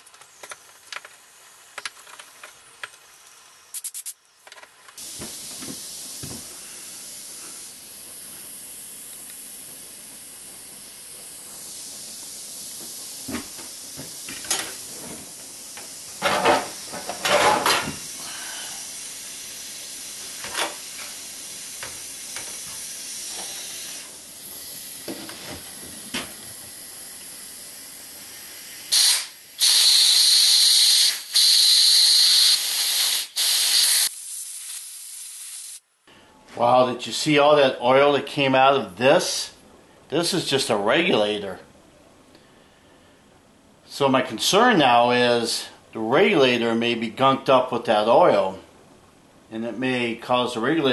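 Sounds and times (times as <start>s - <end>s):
compressed air hissing bursts: 3.7s - 4.2s, 5.0s - 35.8s.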